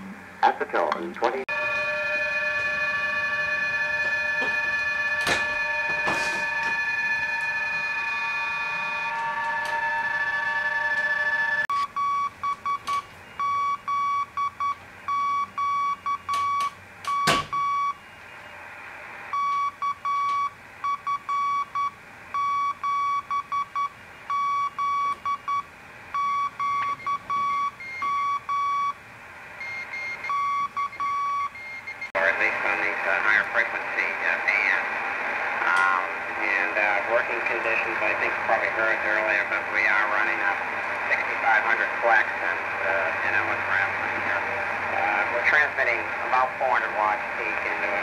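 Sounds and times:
steady digital-mode radio tones: 0.0 - 48.0
morse code beeping: 1.5 - 18.2, 19.3 - 29.0, 29.6 - 32.1
static crack: 32.2 - 48.0.

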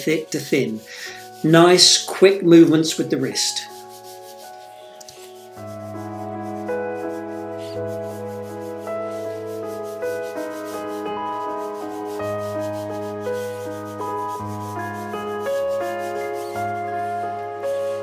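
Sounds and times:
paintbrush rubbing on paper: 0.0 - 18.0
soft background music chords: 0.0 - 18.0.

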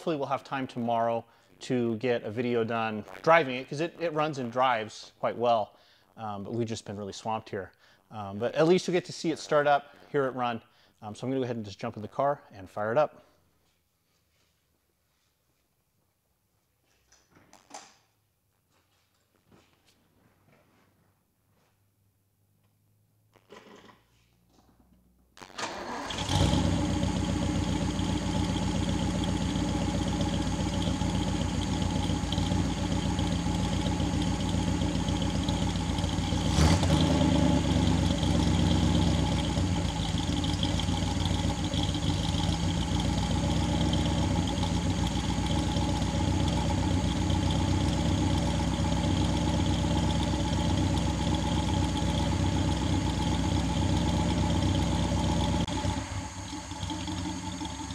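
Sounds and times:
car engine starting and idling: 24.5 - 57.9.

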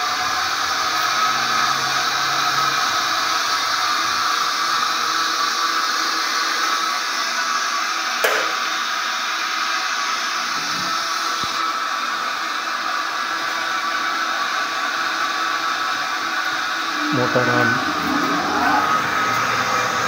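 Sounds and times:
fan-like whooshing: 16.9 - 19.9.

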